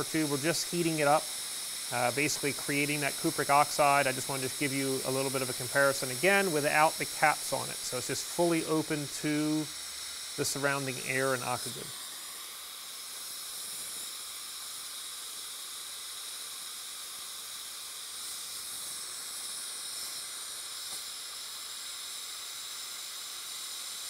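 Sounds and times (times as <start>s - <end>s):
torch flame hissing: 0.0s - 24.0s.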